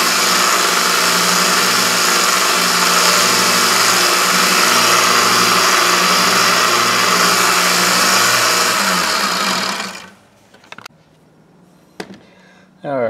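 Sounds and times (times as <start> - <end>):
belt sander sanding metal: 0.0 - 10.2.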